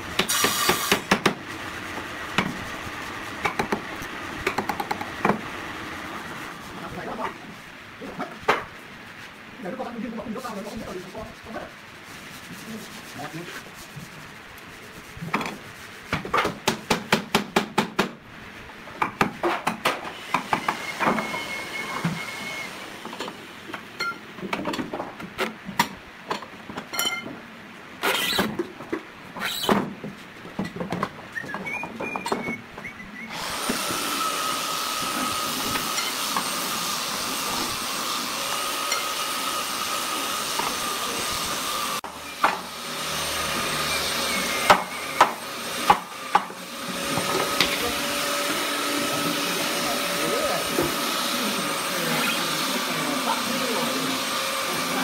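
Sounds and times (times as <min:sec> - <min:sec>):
wooden mallet knocking on chisel: 0:04.4 - 0:05.4
power tool high whine: 0:20.2 - 0:23.0, 0:33.3 - 0:45.8, 0:46.6 - 0:55.0.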